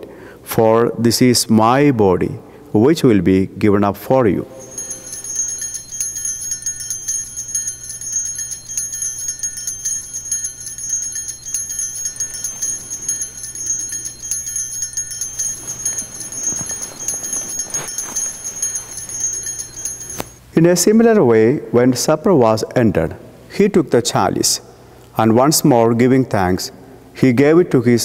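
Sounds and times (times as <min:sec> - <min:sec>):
altar bells jingling: 0:04.6 - 0:20.4.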